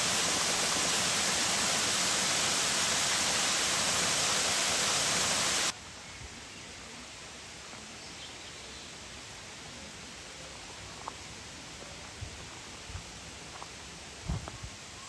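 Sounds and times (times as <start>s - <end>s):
river water rushing over rapids: 0.0s - 5.7s.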